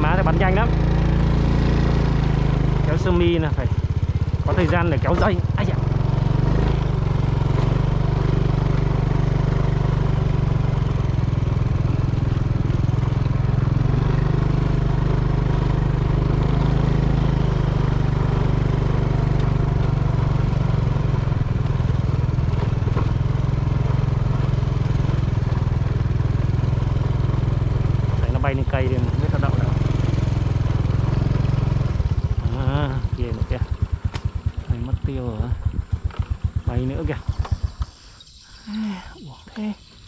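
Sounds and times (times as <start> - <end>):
small engine humming steadily: 0.0 - 40.0.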